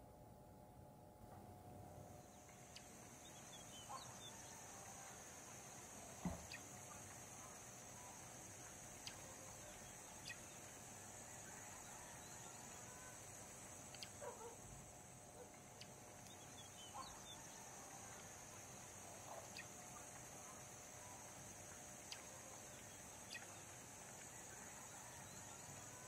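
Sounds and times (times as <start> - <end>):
faint high hiss: 1.2 - 26.0
soft ticks: 13.9 - 14.2
faint short chirping calls: 22.0 - 23.8.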